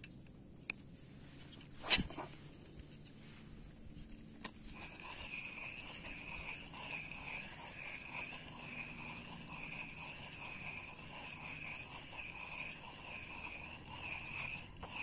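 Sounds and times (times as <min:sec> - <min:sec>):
fishing reel whirring: 0:04.7 - 0:15.0.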